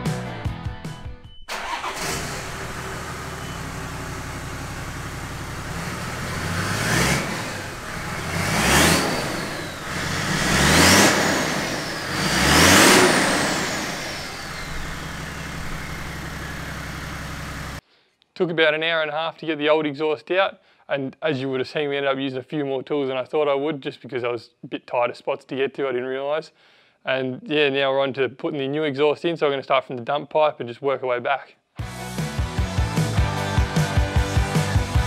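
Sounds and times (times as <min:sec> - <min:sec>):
diesel engine idling and revving: 0:01.5 - 0:17.8
turbo whine: 0:02.0 - 0:17.8.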